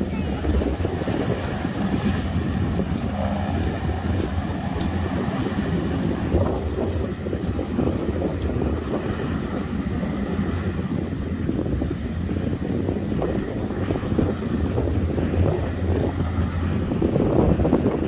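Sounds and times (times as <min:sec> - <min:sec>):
distant hovercraft drone: 0:00.0 - 0:18.0
wind buffeting microphone: 0:00.0 - 0:18.0.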